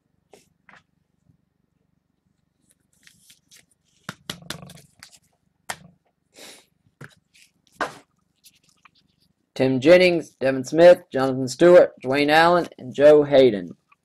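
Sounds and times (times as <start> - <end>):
cards and wrappers rustling: 2.6 - 5.4.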